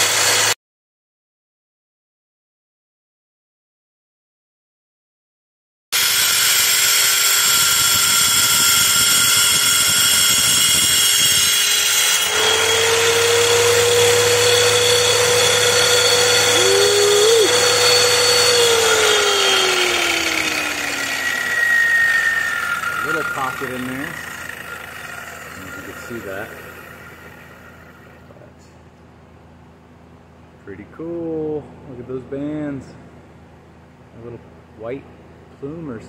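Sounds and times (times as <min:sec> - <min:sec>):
tile saw cutting stone: 0:00.0 - 0:00.6, 0:06.0 - 0:28.2.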